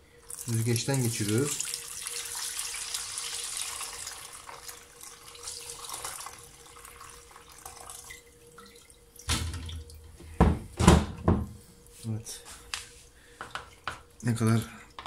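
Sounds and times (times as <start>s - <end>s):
liquid pouring into strainer: 0.2s - 10.0s.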